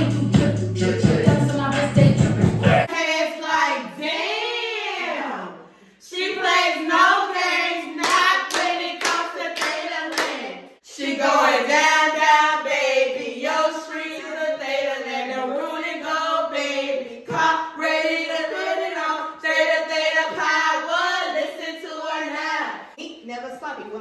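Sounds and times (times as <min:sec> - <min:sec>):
women chanting and singing: 0:00.8 - 0:23.0
sharp hand claps: 0:08.0 - 0:10.4.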